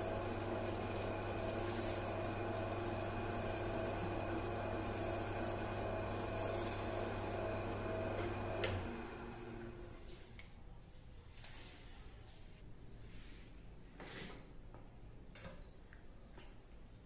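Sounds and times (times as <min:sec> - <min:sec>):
cloth rubbing on spinning wood: 0:00.0 - 0:07.7
wood lathe motor running: 0:00.0 - 0:10.0.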